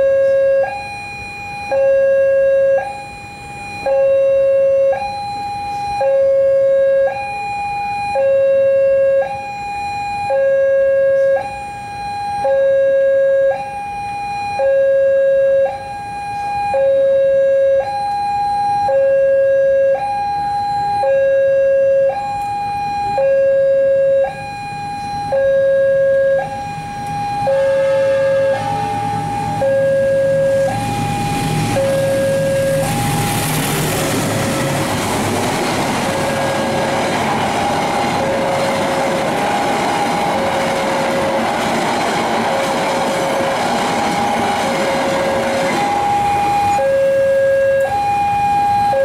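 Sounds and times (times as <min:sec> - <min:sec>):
two-tone crossing alarm: 0:00.0 - 0:49.0
train rumble: 0:24.6 - 0:49.0.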